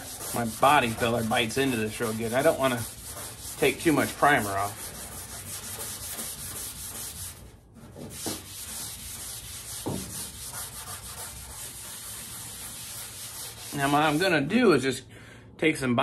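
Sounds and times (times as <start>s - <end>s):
abrasive pad rubbing on metal: 0.0s - 14.3s.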